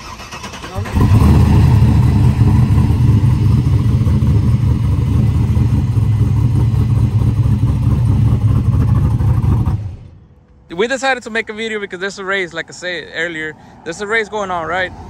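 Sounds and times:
vee eight engine with choppy idle: 0.0 - 10.1.

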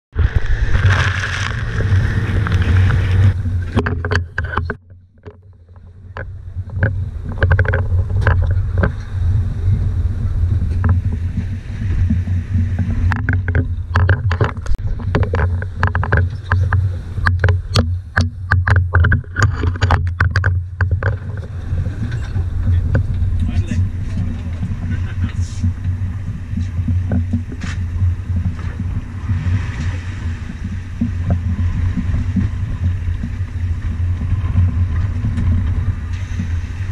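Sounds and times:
spray and wind: 0.1 - 3.8, 6.4 - 36.9
outboard motor running: 0.1 - 36.9
sharp knocks and clatters: 0.8 - 9.0, 10.7 - 29.9.

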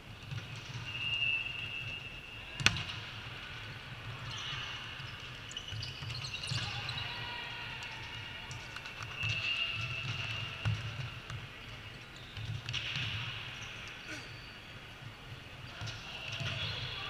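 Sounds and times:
short whistle tone: 0.9 - 2.4.

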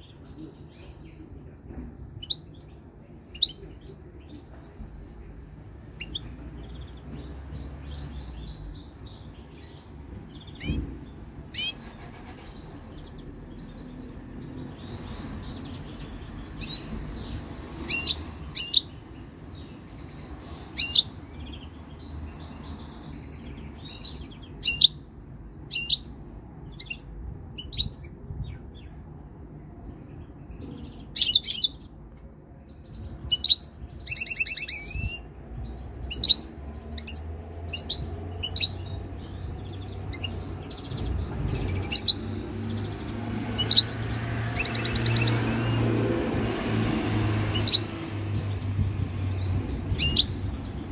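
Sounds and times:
goldfinch twittering and trilling: 33.3 - 45.9, 47.5 - 50.9.

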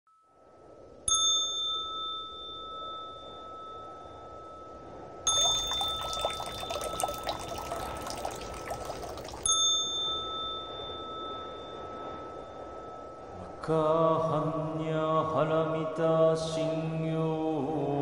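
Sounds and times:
water splashing and trickling: 5.3 - 9.6.

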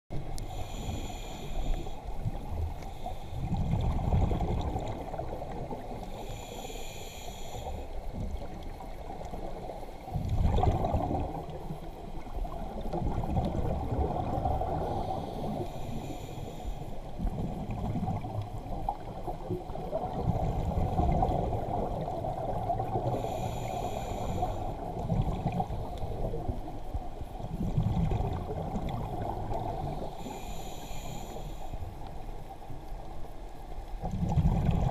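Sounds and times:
underwater water rushing: 0.1 - 34.9.

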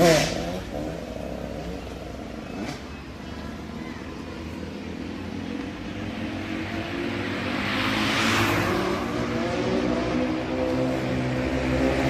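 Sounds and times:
vehicle engines running: 0.0 - 12.0
vehicle passing close by: 5.2 - 12.0.

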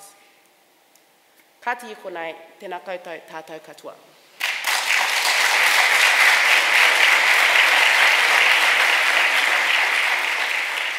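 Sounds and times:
audience applauding: 4.4 - 10.9.

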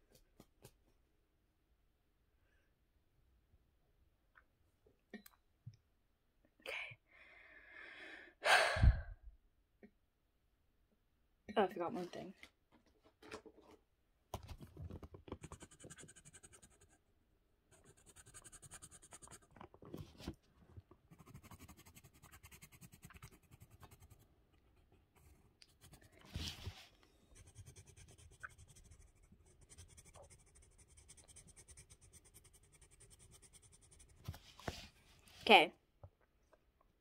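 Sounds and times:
drawing tool scratching paper: 15.3 - 17.0, 17.8 - 19.5, 21.1 - 24.2, 24.8 - 34.4.

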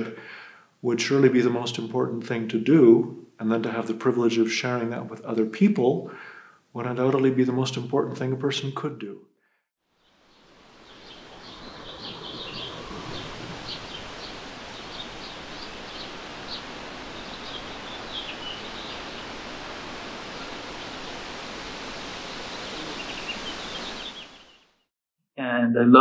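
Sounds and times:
small birds chirping: 10.0 - 24.9
steady rushing noise: 10.1 - 24.7.

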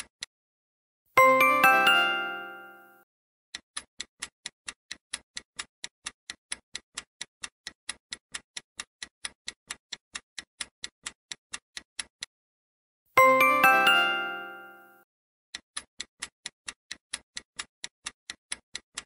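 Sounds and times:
rapid clock ticking: 3.5 - 12.3, 15.5 - 19.0.

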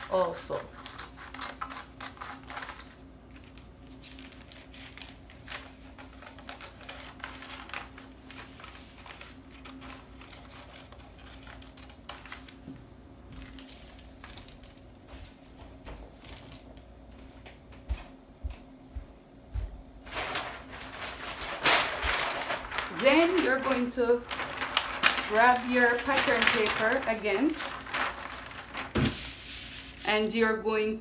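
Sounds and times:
scissors snipping paper: 0.0 - 3.0
paper rustling and crinkling: 0.0 - 17.5, 20.0 - 30.4.

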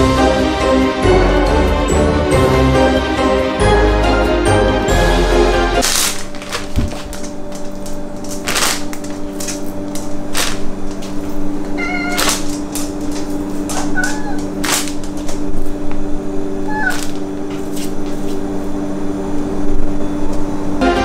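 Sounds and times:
sharp crackles: 5.8 - 15.6
steady low hum: 5.8 - 21.0
cat meowing: 11.7 - 12.5, 13.7 - 14.6, 16.6 - 17.2.

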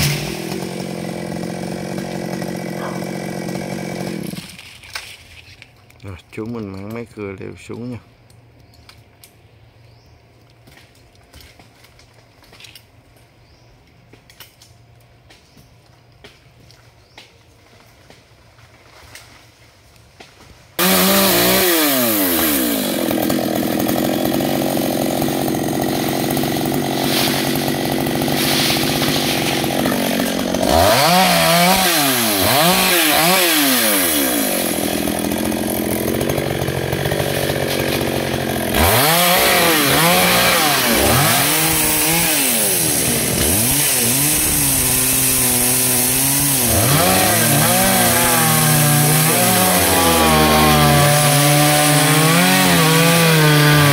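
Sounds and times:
chainsaw cutting branches: 0.0 - 5.3, 20.2 - 53.9.

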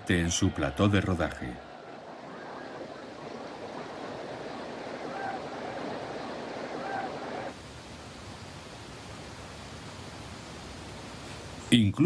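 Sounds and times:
stadium crowd noise: 0.0 - 7.6
faint hiss: 2.7 - 12.0.

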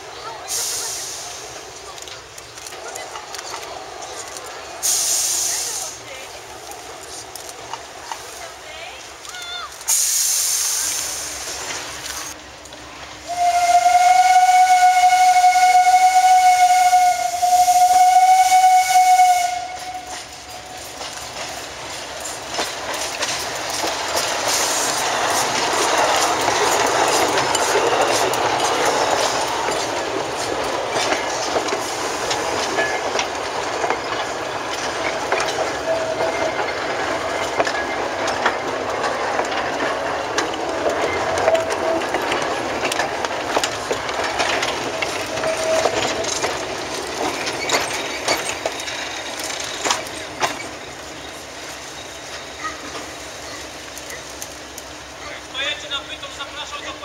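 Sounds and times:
train wheels clattering: 0.4 - 57.0
steam locomotive whistle: 13.2 - 20.5.

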